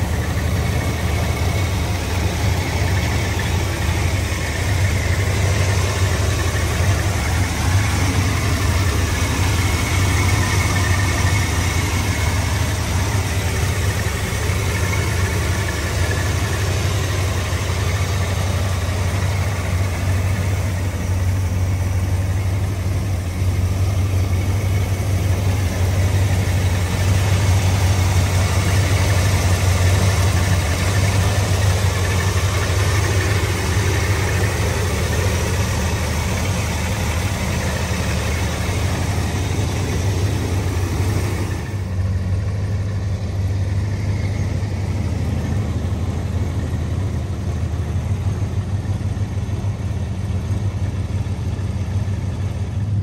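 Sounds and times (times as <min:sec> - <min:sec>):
engine idling: 0:00.0 - 0:53.0.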